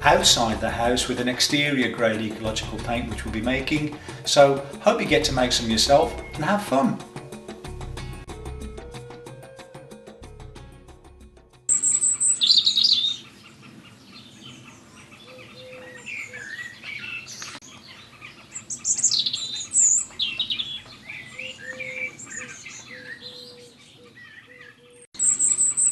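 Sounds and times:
birds singing and chirping: 0.0s - 7.7s, 11.7s - 25.9s
music: 0.0s - 11.8s.

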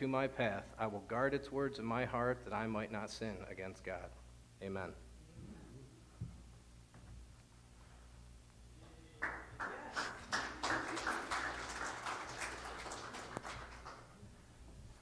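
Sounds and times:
people applauding: 9.2s - 14.2s.

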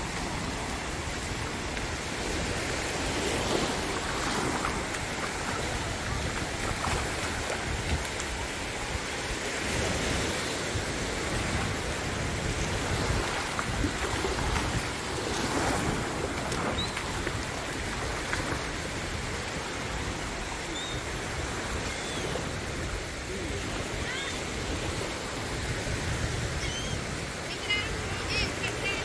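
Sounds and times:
small waves washing onto shore: 0.0s - 29.0s
wind buffeting microphone: 0.0s - 29.0s.

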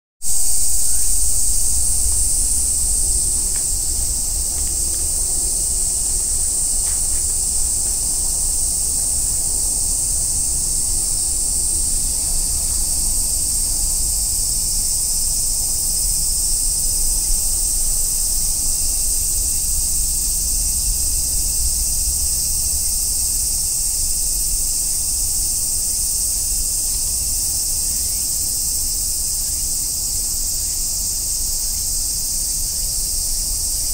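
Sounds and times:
low rumble: 0.2s - 8.5s
cicadas shrilling: 0.2s - 33.9s.

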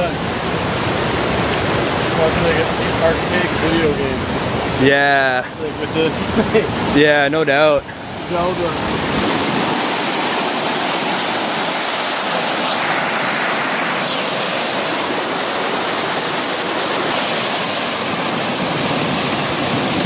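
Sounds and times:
waterfall pouring over rocks: 0.0s - 20.0s.

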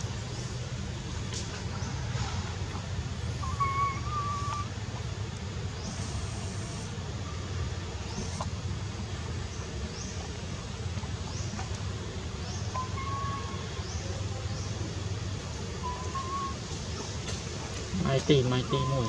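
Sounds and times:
low outdoor rumble: 0.0s - 19.0s
faint high chirps: 3.3s - 4.8s, 12.5s - 15.0s, 15.8s - 16.7s
whistled tones: 3.4s - 4.8s, 12.8s - 13.6s, 15.8s - 16.6s.

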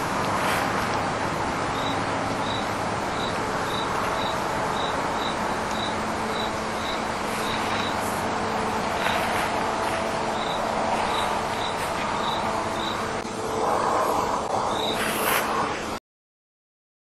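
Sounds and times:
steady background hiss: 0.0s - 16.0s
cricket chirping: 1.7s - 13.2s, 14.6s - 15.1s.

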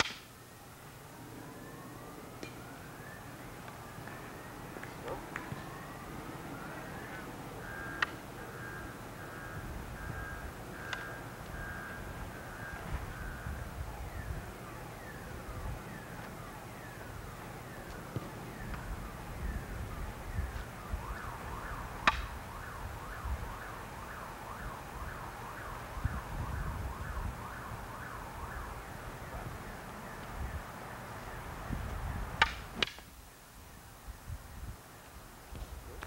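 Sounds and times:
wooden staffs clacking: 0.0s - 0.3s, 22.0s - 22.3s, 32.4s - 33.1s.

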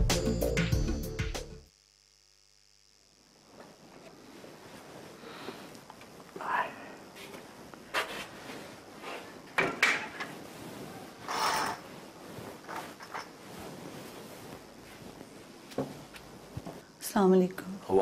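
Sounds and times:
curtain swishing: 7.2s - 16.8s.

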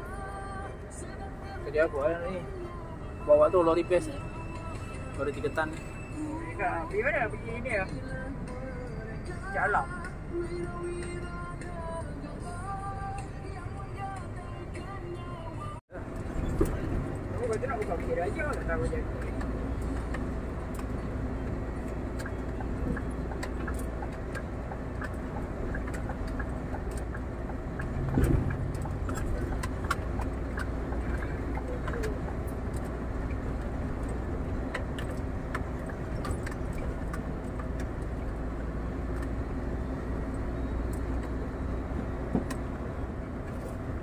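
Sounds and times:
truck diesel engine droning: 0.0s - 44.0s
cab fittings clicking and rattling: 17.4s - 39.4s.

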